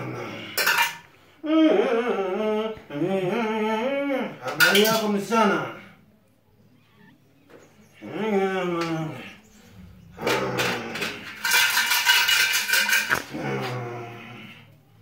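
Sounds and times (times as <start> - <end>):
man making guttural calls: 0.0 - 0.8, 1.4 - 6.0, 7.9 - 11.7.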